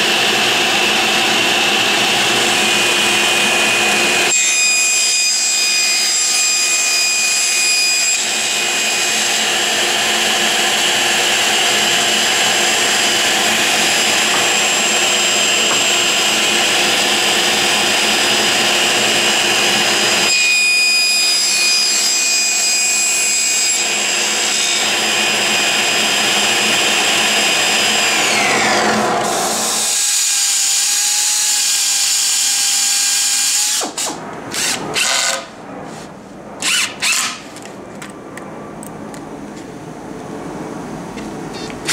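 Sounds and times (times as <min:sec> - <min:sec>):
steady motor hum: 0:00.0 - 0:04.4, 0:08.2 - 0:20.3, 0:23.2 - 0:35.8
table saw cutting plywood: 0:00.0 - 0:37.4, 0:41.6 - 0:41.9.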